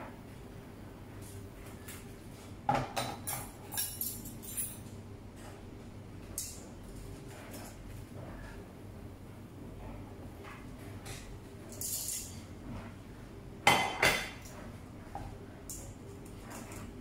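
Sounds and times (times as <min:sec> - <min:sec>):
metal utensils clinking on dishes: 0:03.0 - 0:04.9, 0:11.7 - 0:12.5.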